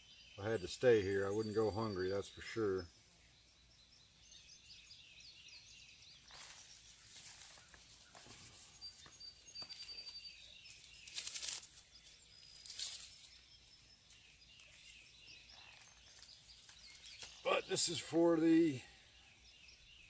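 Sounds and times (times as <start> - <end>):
birds chirping: 0.0 - 20.0
rustling of leaves stripped: 6.3 - 13.4, 14.1 - 17.5.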